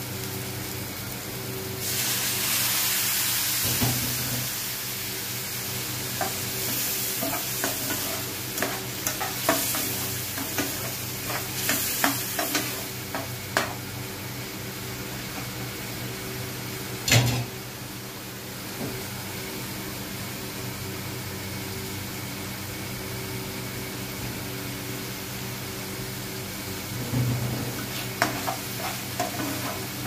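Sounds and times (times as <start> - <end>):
food sizzling in oil: 0.0 - 15.9, 24.9 - 30.0
spatula scraping a pan: 6.2 - 13.7, 27.7 - 30.0.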